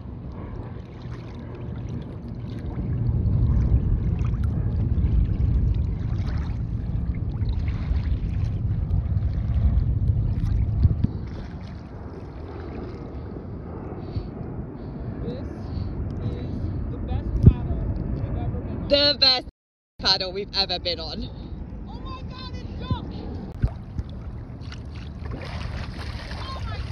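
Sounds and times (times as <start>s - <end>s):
wind buffeting microphone: 0.0s - 19.4s, 20.1s - 26.9s
waves lapping against kayak hull: 0.6s - 13.4s, 23.6s - 26.9s.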